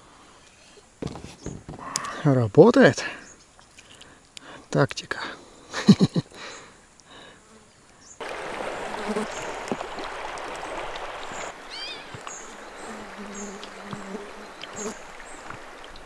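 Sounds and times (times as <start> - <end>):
small birds chirping: 7.7 - 16.0
river water running: 8.2 - 16.0.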